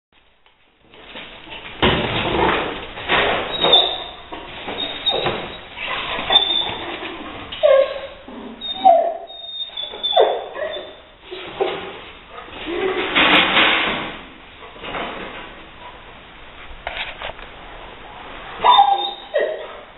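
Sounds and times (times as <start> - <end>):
knocks and thumps: 1.6 - 5.6
dog barking and whining: 3.5 - 11.8, 18.6 - 19.9.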